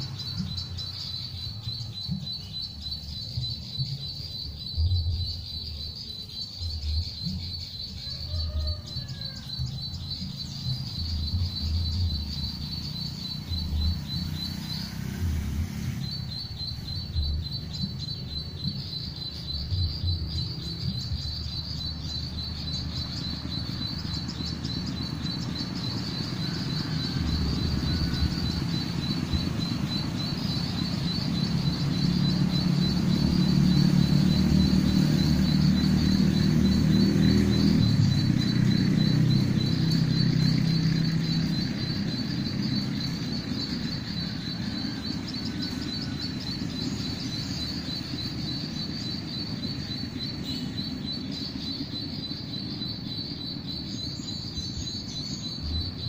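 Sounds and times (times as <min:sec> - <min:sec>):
bird call high chirping: 0:00.0 - 0:56.0.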